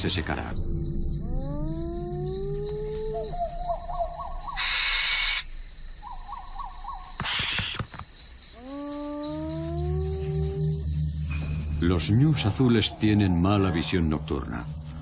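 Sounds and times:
crickets chirring: 0:00.0 - 0:15.0
low call rising in pitch: 0:08.6 - 0:11.8.

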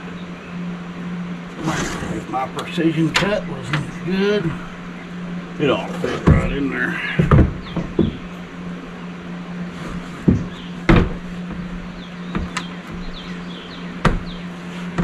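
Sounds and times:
steady low hum: 0:00.0 - 0:15.0
wooden knocks and bumps: 0:05.9 - 0:08.4, 0:09.9 - 0:13.4, 0:14.0 - 0:15.0.

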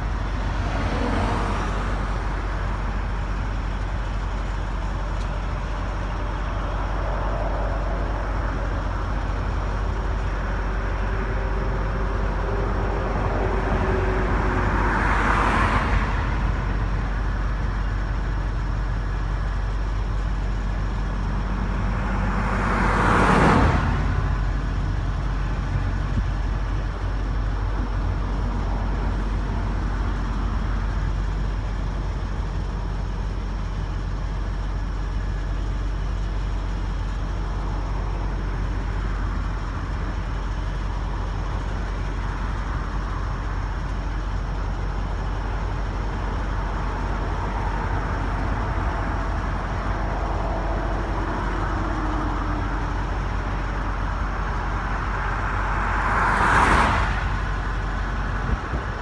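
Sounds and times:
car passing by: 0:00.0 - 0:02.3, 0:12.9 - 0:16.6, 0:22.0 - 0:24.3, 0:54.6 - 0:59.0
steady low rumble: 0:00.0 - 0:15.2, 0:23.6 - 0:56.2, 0:57.2 - 0:59.0.

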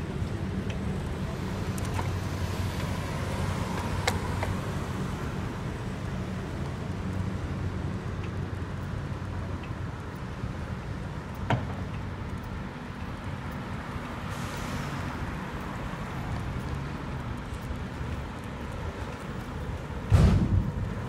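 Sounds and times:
traffic rumble: 0:00.0 - 0:21.0.

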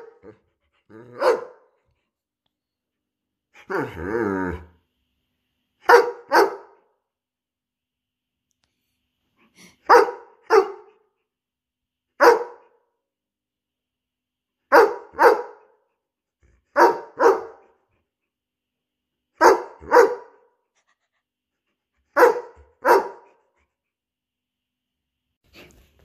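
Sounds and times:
dog barking: 0:01.2 - 0:01.7, 0:05.8 - 0:06.8, 0:09.8 - 0:11.0, 0:12.2 - 0:12.8, 0:14.7 - 0:15.8, 0:16.7 - 0:17.7, 0:19.4 - 0:20.5, 0:22.2 - 0:23.4.

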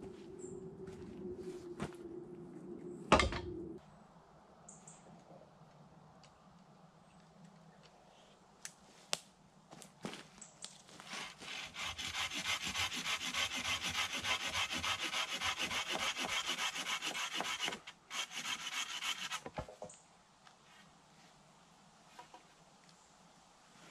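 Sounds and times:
hand saw cutting wood: 0:11.1 - 0:19.6.

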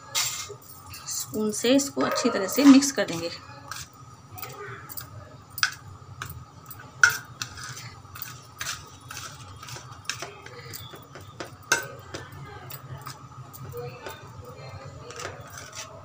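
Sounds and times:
spoon scraping a metal plate: 0:02.0 - 0:04.0, 0:05.6 - 0:12.3, 0:14.9 - 0:16.0.

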